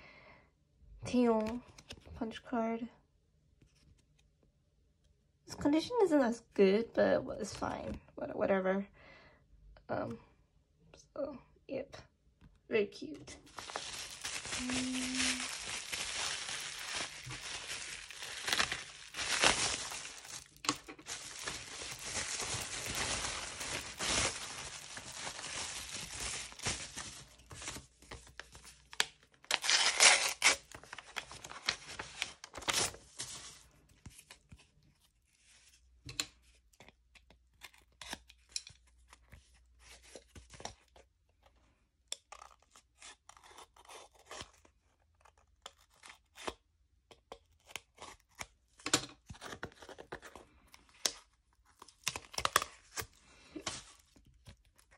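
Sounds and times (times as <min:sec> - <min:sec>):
packaging crinkling and tearing: 0:13.4 - 0:34.5, 0:49.2 - 0:54.9.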